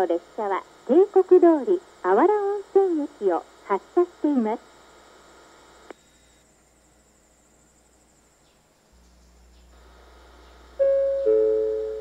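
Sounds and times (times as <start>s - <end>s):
faint low hum: 0.0s - 12.0s
insect chirring: 5.9s - 12.0s
multi-note chime: 10.8s - 12.0s.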